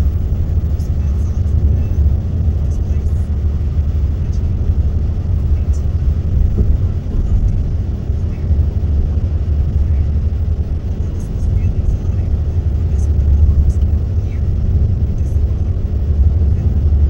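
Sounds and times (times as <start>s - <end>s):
vehicle driving on highway rumble: 0.0s - 17.0s.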